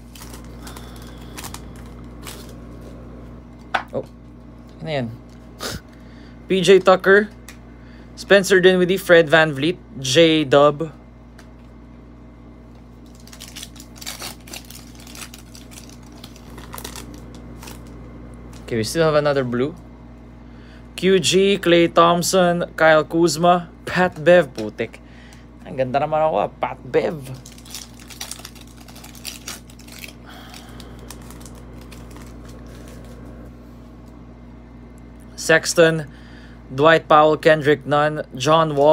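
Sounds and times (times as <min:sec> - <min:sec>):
cards rustling: 0:00.0 - 0:03.0, 0:13.0 - 0:18.9, 0:27.0 - 0:33.5
foil wrapper crinkling: 0:00.0 - 0:04.1, 0:13.0 - 0:18.9, 0:27.1 - 0:33.4.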